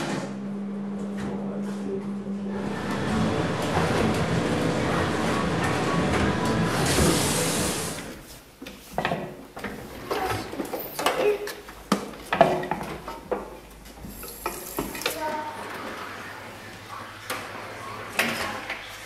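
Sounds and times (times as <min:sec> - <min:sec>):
loud rushing hiss: 0:06.6 - 0:08.2
dishes and utensils clattering: 0:10.0 - 0:13.6.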